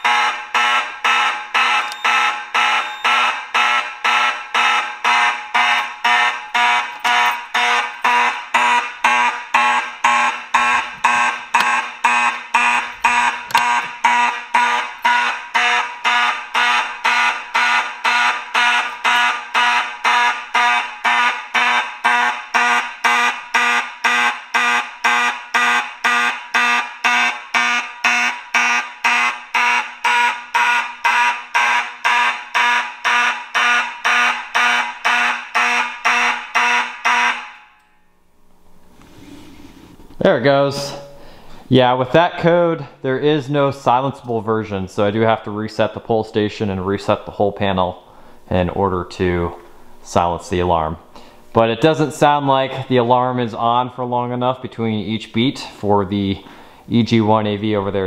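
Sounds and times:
pulsing fire alarm horn: 0:00.0 - 0:38.0.

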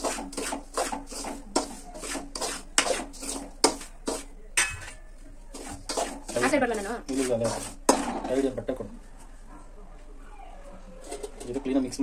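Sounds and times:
spoon clacking against pan: 0:00.0 - 0:08.5
spoon scraping dry grain in pan: 0:00.0 - 0:08.6.

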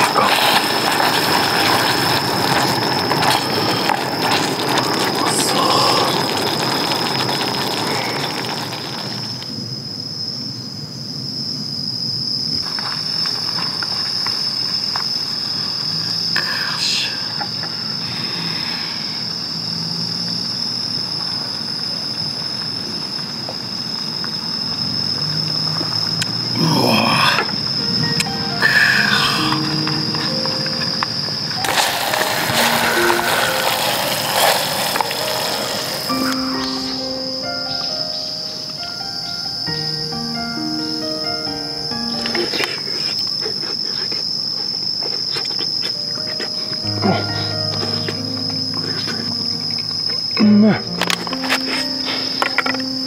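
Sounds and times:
sauce bubbling in a pot: 0:00.0 - 0:09.6, 0:31.6 - 0:36.4
insects chirring: 0:00.0 - 0:53.0.

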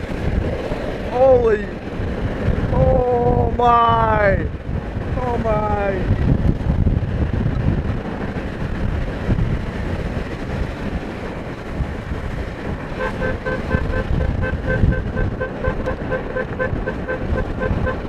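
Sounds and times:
wind and road noise in car: 0:00.0 - 0:18.0
car horn short beeps: 0:13.0 - 0:18.0.

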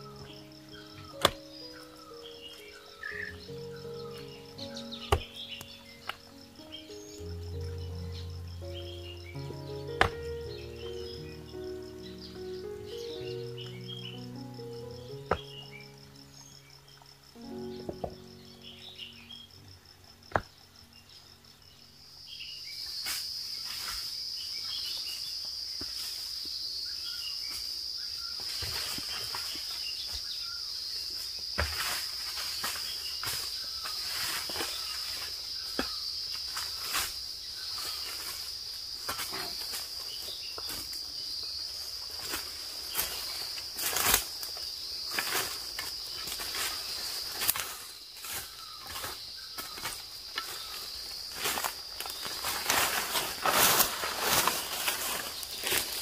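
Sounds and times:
insects droning: 0:00.0 - 0:56.0
footsteps crunching through dry leaves: 0:31.7 - 0:35.6, 0:42.0 - 0:56.0
twigs cracking: 0:42.2 - 0:56.0.

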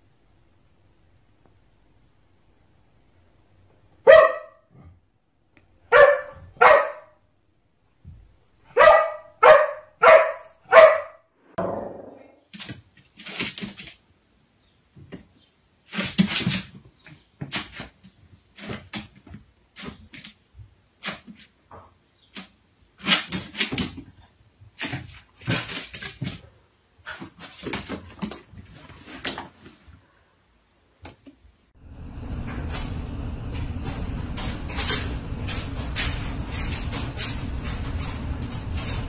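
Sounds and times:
small dog barking: 0:04.0 - 0:04.7, 0:05.9 - 0:07.2, 0:08.7 - 0:12.0.

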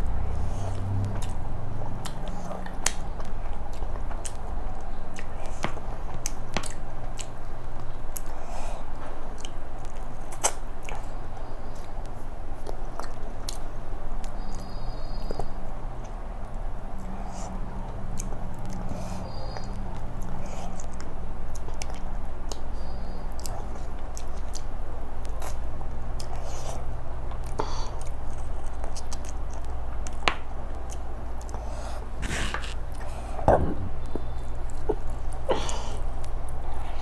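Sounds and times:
steady low hum: 0:00.0 - 0:37.0
chewing and wet mouth clicks: 0:00.6 - 0:05.6, 0:06.2 - 0:08.4, 0:09.3 - 0:11.1, 0:12.6 - 0:15.5, 0:18.0 - 0:25.6, 0:26.2 - 0:31.6.

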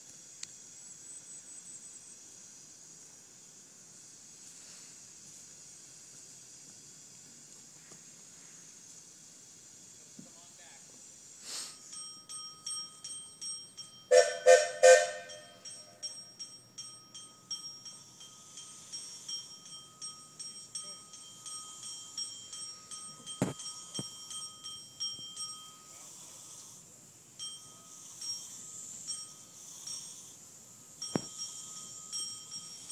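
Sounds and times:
steam locomotive bell ringing: 0:11.6 - 0:32.9
steam whistle toots: 0:14.1 - 0:15.6.

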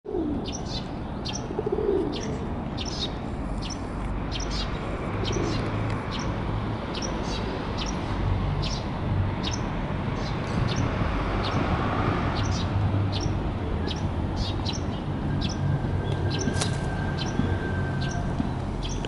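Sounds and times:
pigeon cooing: 0:00.1 - 0:00.7, 0:01.3 - 0:02.9
small birds chirping: 0:00.1 - 0:11.6, 0:12.3 - 0:17.4, 0:18.8 - 0:19.0.

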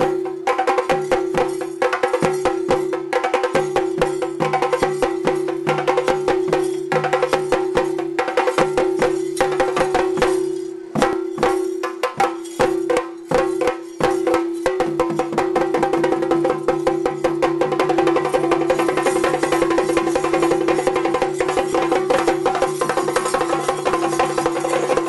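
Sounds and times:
fast stick drumming: 0:11.0 - 0:25.0.

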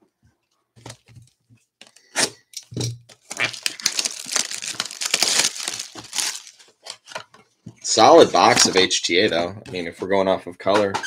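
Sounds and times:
plastic wrap crackling: 0:03.1 - 0:07.1.

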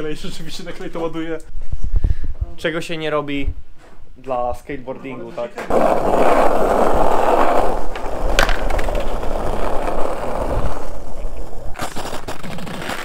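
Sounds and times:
skateboard clack: 0:05.6 - 0:13.0
skateboard wheels rolling on asphalt: 0:05.6 - 0:13.0.

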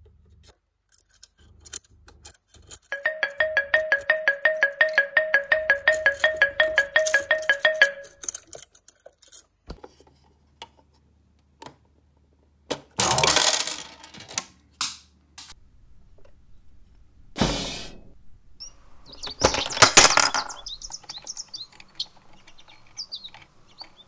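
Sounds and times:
plastic toy pieces clattering: 0:00.9 - 0:02.9, 0:08.2 - 0:09.6, 0:12.8 - 0:14.6, 0:19.4 - 0:20.7
clock ticking sound effect: 0:03.0 - 0:08.2.

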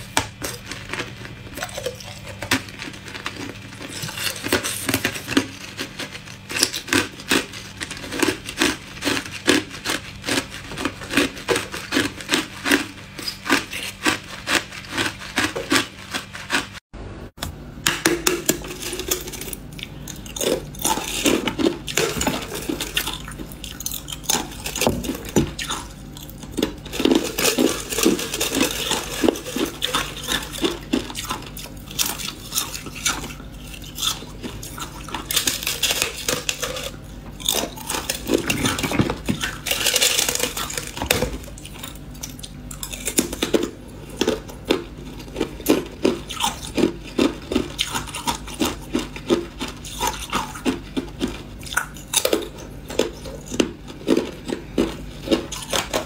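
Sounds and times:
ice crunched between teeth: 0:18.7 - 0:56.0.

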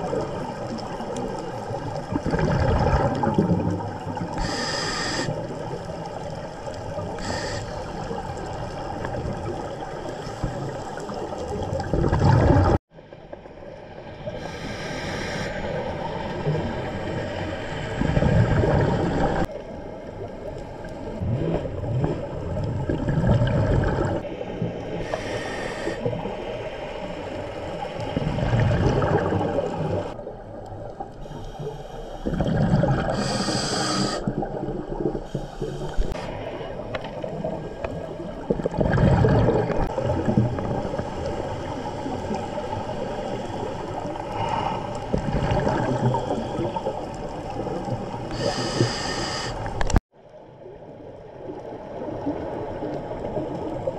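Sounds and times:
exhaled bubbles gurgling underwater: 0:00.0 - 0:50.0, 0:50.6 - 0:53.9
regulator inhalation hiss: 0:04.4 - 0:05.4, 0:07.2 - 0:08.0, 0:14.4 - 0:15.7, 0:25.0 - 0:26.1, 0:33.1 - 0:34.3, 0:48.3 - 0:49.8.

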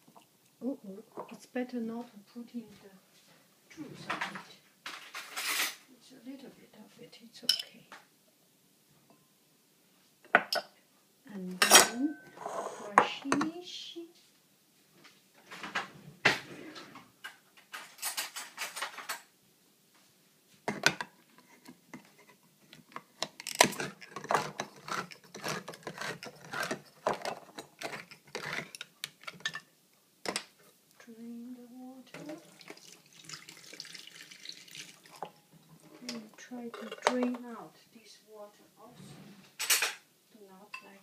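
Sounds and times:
can opener clicking and crunching: 0:23.0 - 0:29.5
liquid pouring hiss: 0:32.3 - 0:35.4.

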